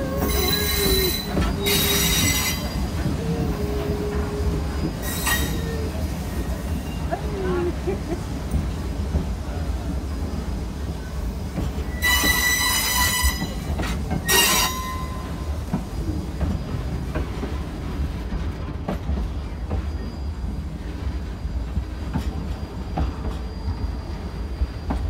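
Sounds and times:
train wheels squealing: 0.0 - 7.2, 10.1 - 17.5, 19.3 - 21.0, 22.1 - 25.0
train rumbling: 0.0 - 25.0.

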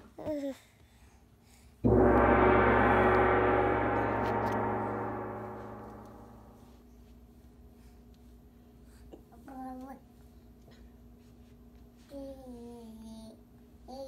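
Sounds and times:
gong ringing: 1.9 - 6.6.

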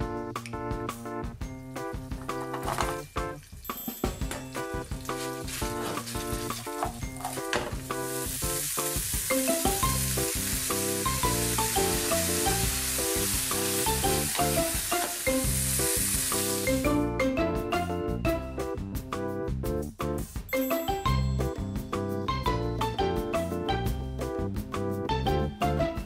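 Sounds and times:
beans sizzling in a frying pan: 4.6 - 17.0.

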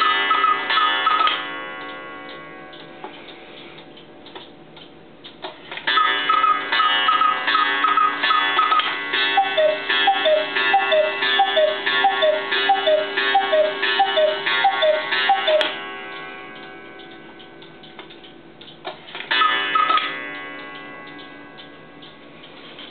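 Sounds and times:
quail clock call: 0.0 - 1.4, 5.9 - 15.8, 19.3 - 20.1
cuckoo clock call: 0.0 - 2.4, 5.8 - 18.3, 19.3 - 22.9
clock click: 0.0 - 22.9
clock ticking: 0.0 - 22.9.

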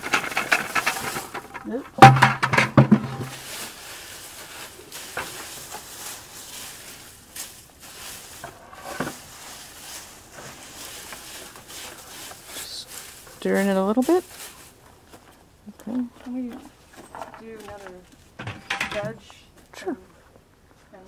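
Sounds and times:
loud knocks and clatter: 0.0 - 3.4
dry leaves and straw rustling: 0.0 - 18.4.

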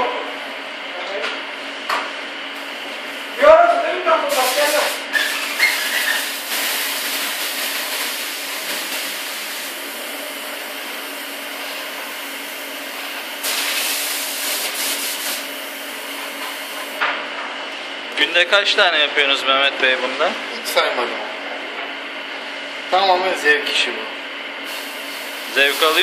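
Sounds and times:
airbrush hissing: 13.4 - 15.5, 24.6 - 26.0.

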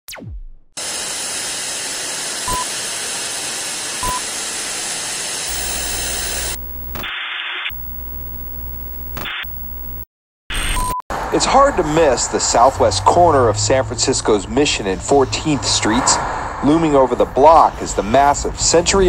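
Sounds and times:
low electrical hum and buzz: 5.5 - 7.1, 7.7 - 10.0
short beeps: 5.5 - 7.1, 7.7 - 10.0, 10.6 - 11.0
television static hiss: 5.5 - 7.1, 7.7 - 10.0.

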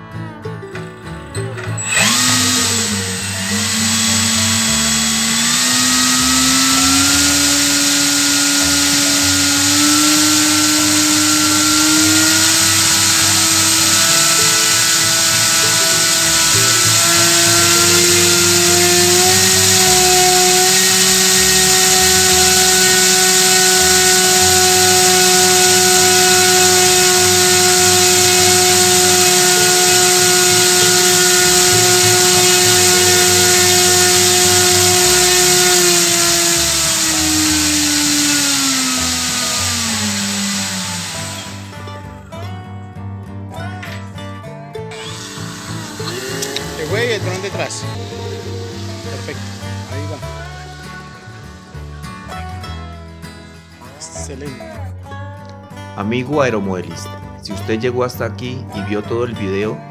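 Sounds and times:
electric motor propeller whirring: 1.6 - 41.8, 44.9 - 51.9.

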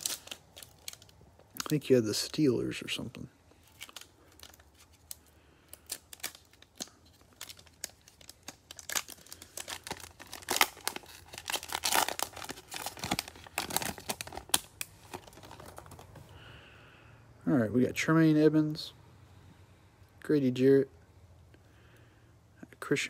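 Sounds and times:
foil wrapper tearing and crinkling: 0.0 - 2.4, 3.6 - 16.1.

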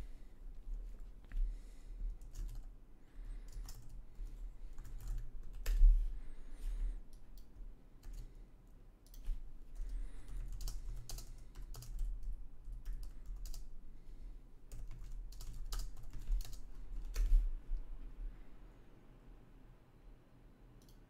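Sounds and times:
keyboard typing: 2.2 - 2.7, 3.4 - 5.9, 7.1 - 8.4, 9.0 - 13.7, 14.7 - 17.3.

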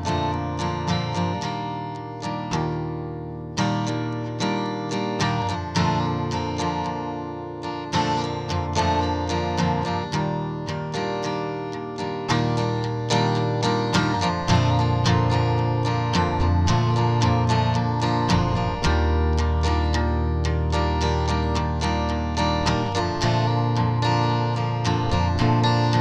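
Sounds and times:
plucked string instrument music: 0.0 - 26.0.

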